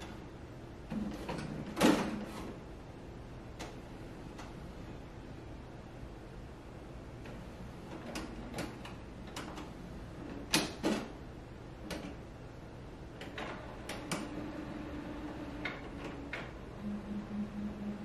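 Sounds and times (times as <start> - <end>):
faint motor hum: 0.0 - 18.0
printer mechanical clicks and clunks: 0.8 - 2.6, 7.2 - 11.2, 11.8 - 12.2, 13.1 - 18.0.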